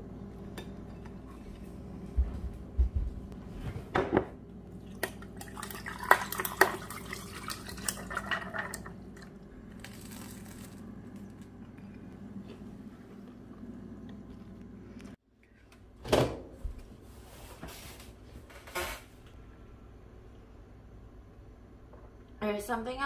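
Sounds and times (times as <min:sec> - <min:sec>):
liquid pouring into a cup: 0:04.8 - 0:09.4.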